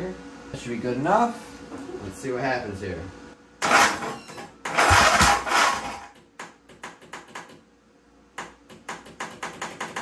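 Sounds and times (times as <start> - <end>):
electric starter whirring: 3.6 - 6.2
starter clicking: 4.7 - 6.1.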